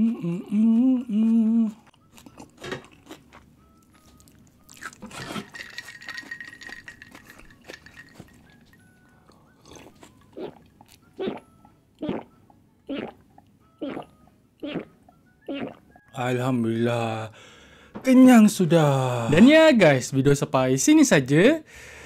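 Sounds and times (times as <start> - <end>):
person humming: 0.0 - 2.0
chewing and mouth clicks: 1.8 - 11.4.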